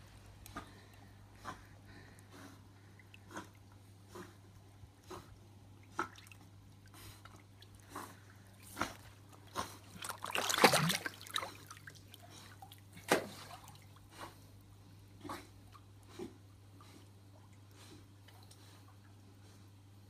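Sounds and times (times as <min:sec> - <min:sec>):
water splashing: 0:09.9 - 0:13.9.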